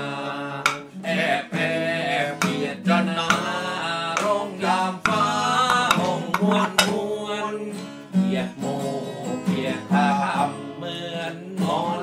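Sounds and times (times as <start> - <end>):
acoustic guitar strumming: 0.0 - 12.0
man singing: 0.0 - 12.0.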